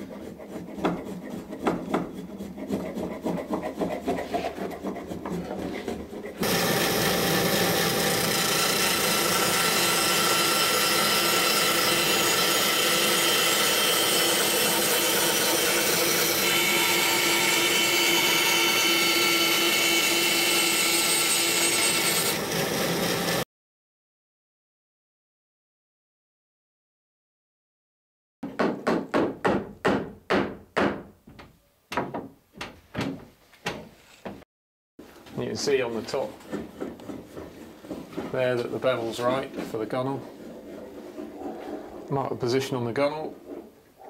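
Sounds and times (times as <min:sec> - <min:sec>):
bandsaw cutting wood: 0:00.0 - 0:23.4.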